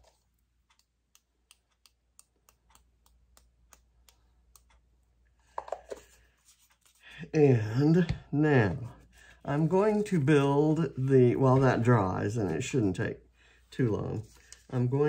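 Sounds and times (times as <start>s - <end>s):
paint flicking clicking taps: 0.6s - 4.9s.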